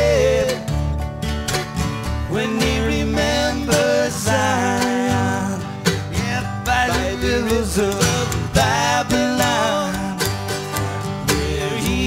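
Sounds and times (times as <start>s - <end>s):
acoustic string band playing reggae: 0.0s - 12.0s.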